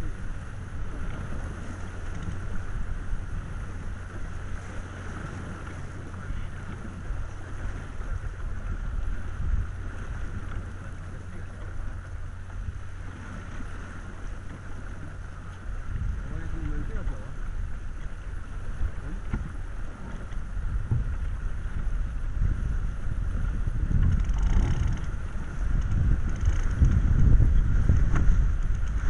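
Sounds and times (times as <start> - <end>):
water rushing past boat hull: 0.0 - 29.0
wind rumbling on microphone: 0.0 - 29.0.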